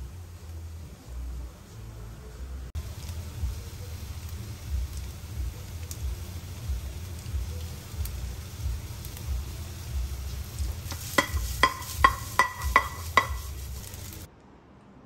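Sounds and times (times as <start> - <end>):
frying sizzle: 0.0 - 14.3
spatula stirring in wok: 9.4 - 14.3
spatula knocking on pan: 10.9 - 13.9.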